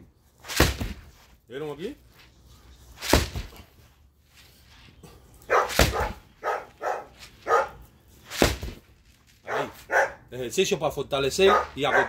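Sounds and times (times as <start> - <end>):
heavy thud: 0.5 - 1.2, 3.0 - 3.6, 5.7 - 6.3, 8.3 - 8.9
dog barking: 5.5 - 7.8, 9.5 - 10.2, 11.4 - 12.0.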